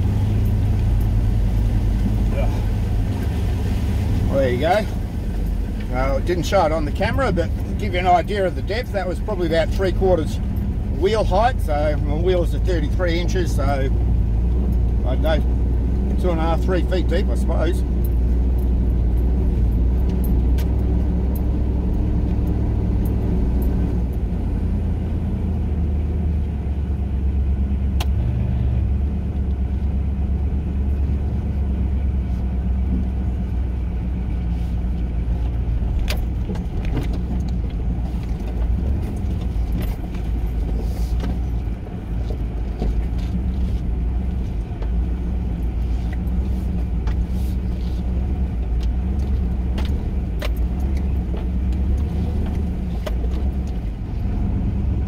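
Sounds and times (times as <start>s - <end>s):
car engine running: 0.0s - 55.0s
clicks and rattles over bumps: 34.9s - 54.3s.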